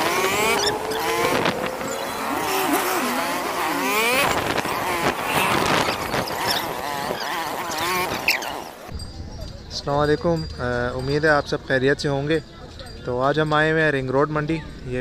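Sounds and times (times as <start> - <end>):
squealing tones: 0.0 - 8.9
vehicle engines revving: 0.0 - 8.9.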